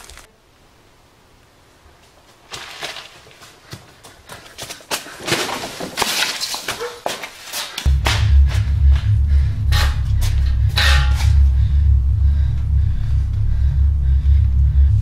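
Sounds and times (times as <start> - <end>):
wood debris knocking and clattering: 5.2 - 7.4.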